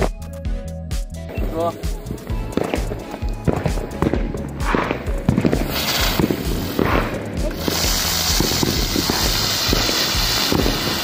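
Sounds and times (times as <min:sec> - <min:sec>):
background music with steady beat: 0:00.0 - 0:11.0
ground-spinner firework hissing: 0:01.4 - 0:11.0.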